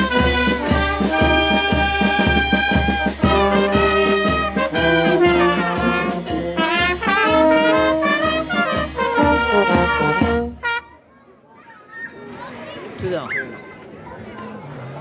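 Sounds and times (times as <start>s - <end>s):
steady percussion beat: 0.0s - 10.6s
brass band playing: 0.0s - 11.0s.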